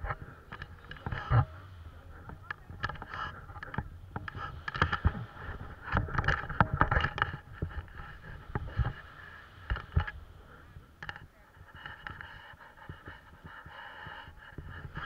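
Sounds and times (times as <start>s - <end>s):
wind buffeting microphone: 0.0s - 15.0s
camera mount knocks and scrapes: 5.8s - 9.0s.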